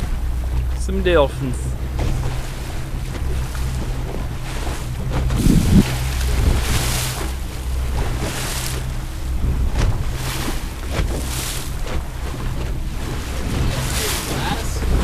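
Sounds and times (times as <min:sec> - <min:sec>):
boat engine drone: 0:00.0 - 0:15.0
hull rushing through water: 0:00.0 - 0:15.0
wind buffeting microphone: 0:00.0 - 0:15.0
splashing spray: 0:13.2 - 0:15.0.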